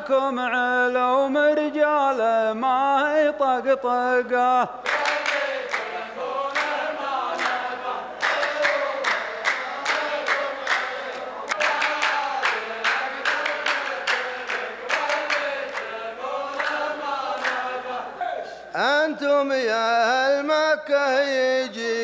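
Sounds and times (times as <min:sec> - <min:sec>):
men chanting in unison: 0:00.0 - 0:22.0
sharp handclaps: 0:04.8 - 0:17.8.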